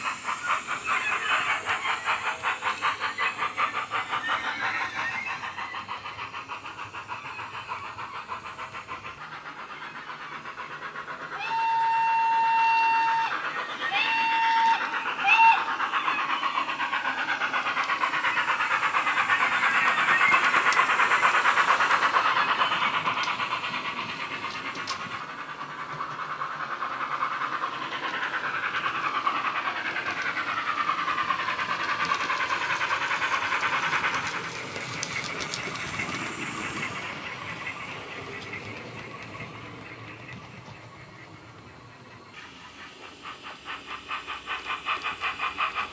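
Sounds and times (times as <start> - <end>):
steam locomotive exhaust beats: 0.0 - 45.9
steam whistle blasts: 11.4 - 15.7.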